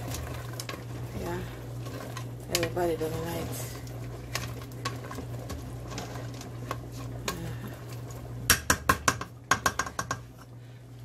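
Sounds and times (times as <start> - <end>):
steady low hum: 0.0 - 11.0
wooden spoon knocking on a pot: 8.5 - 10.3.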